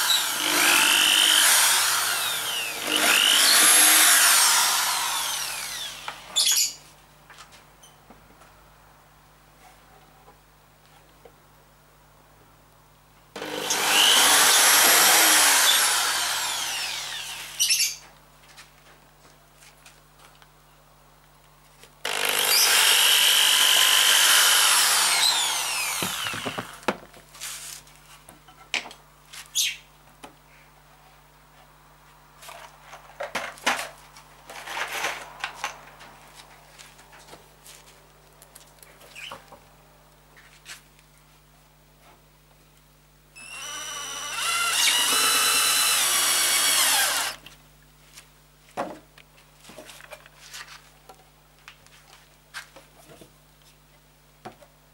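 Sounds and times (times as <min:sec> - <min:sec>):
cordless drill boring into wood: 0:00.0 - 0:06.7, 0:13.4 - 0:18.0, 0:22.0 - 0:26.9, 0:43.4 - 0:47.4.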